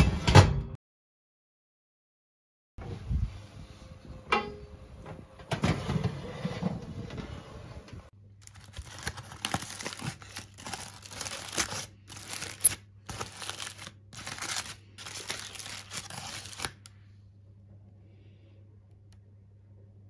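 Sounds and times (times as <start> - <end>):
aluminium foil crinkling: 8.4 - 16.9.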